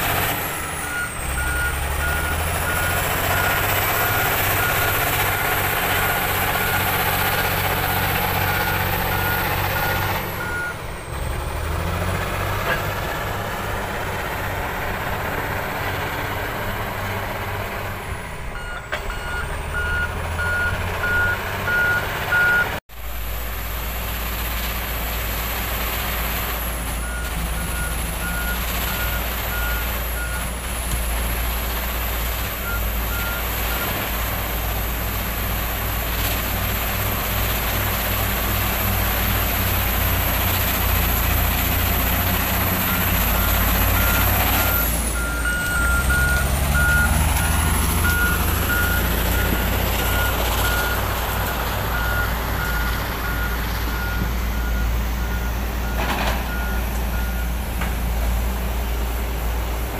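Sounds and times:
bulldozer diesel engine running: 0.0s - 59.9s
reverse alarm beeping: 18.6s - 22.7s.

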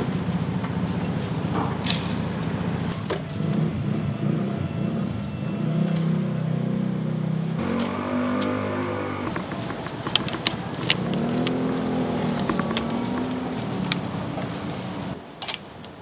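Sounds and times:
vehicle engine running: 6.6s - 15.2s.

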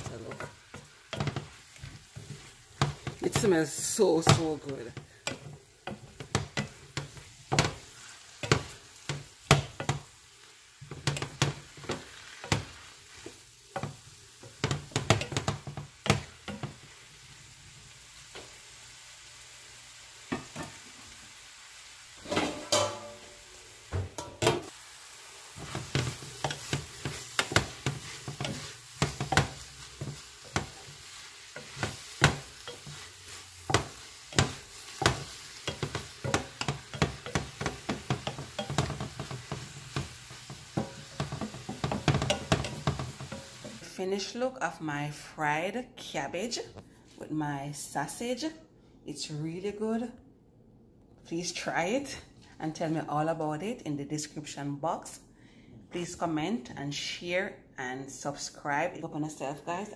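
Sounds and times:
wooden spatula scraping a pan: 0.0s - 10.1s, 25.5s - 43.8s
low sizzle: 0.0s - 45.0s.

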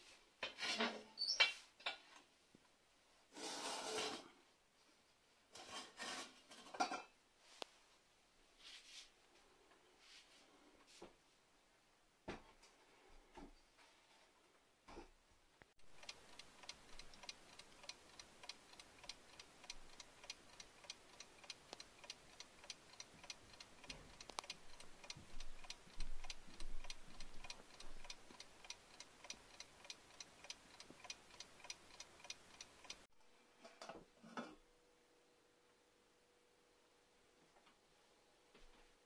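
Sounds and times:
mechanical alarm clock ticking: 15.8s - 33.1s.

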